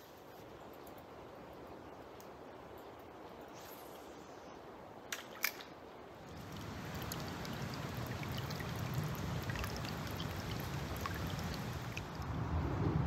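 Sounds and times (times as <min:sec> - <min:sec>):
creek water babbling over stones: 0:06.3 - 0:12.2.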